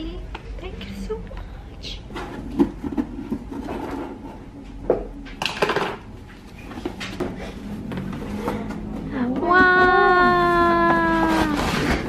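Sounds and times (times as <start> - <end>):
cardboard scraping: 6.6 - 9.1, 9.7 - 12.0
tape tearing: 10.8 - 12.0.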